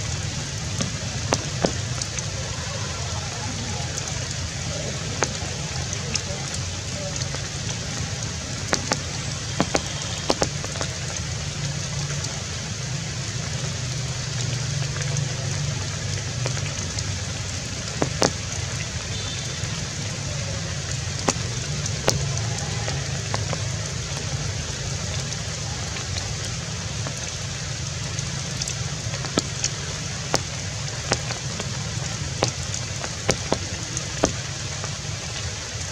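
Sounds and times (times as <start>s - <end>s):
sharp clicks and snaps: 8.7s - 11.2s, 17.9s - 18.6s, 28.6s - 35.0s.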